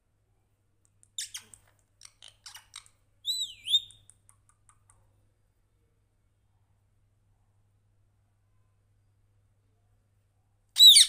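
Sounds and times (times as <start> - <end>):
parakeet chirping and whistling: 1.2 - 4.0, 10.8 - 11.0.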